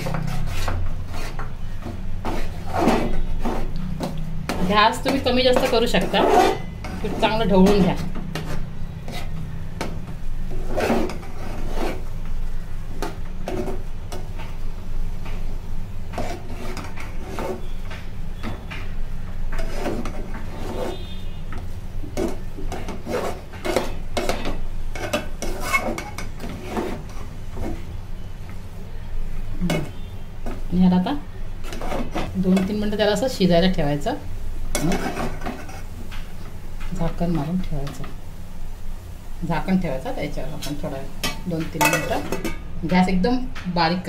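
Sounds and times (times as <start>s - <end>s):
metal spatula scraping metal pot: 0.0s - 14.2s, 16.0s - 17.8s, 19.5s - 28.3s, 31.5s - 33.3s, 34.7s - 36.2s, 40.4s - 42.6s.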